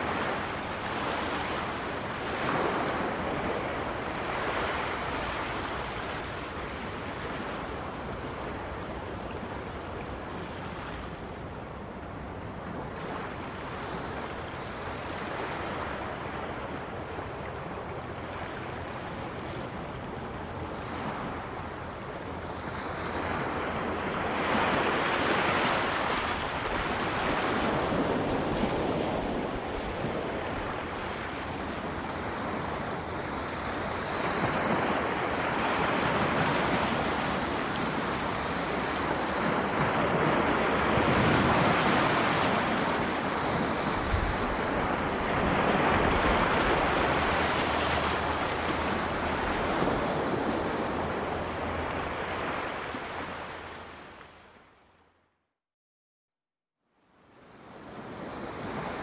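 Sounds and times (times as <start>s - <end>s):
sea surf washing onto shore: 12.7s - 54.1s.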